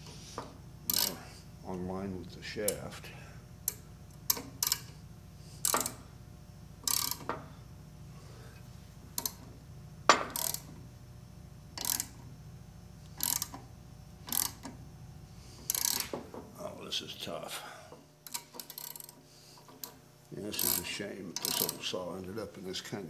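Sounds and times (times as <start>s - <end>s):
ratchet wrench clicking: 0.9s - 1.2s, 3.6s - 5.0s, 5.6s - 6.0s, 6.8s - 7.4s, 9.2s - 9.4s, 10.1s - 10.8s, 11.8s - 12.2s, 13.1s - 14.8s, 15.6s - 16.2s, 18.2s - 21.8s.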